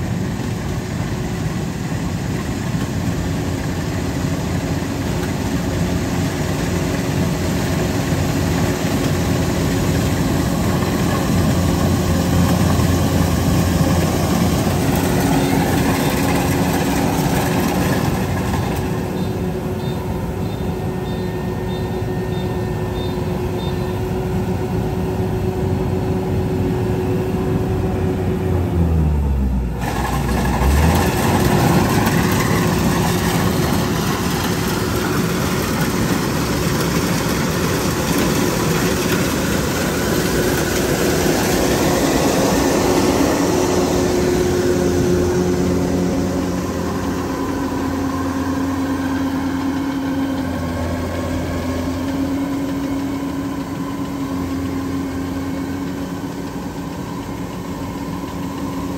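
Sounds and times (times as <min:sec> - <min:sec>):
combine harvester engine drone: 0:00.0 - 0:58.9.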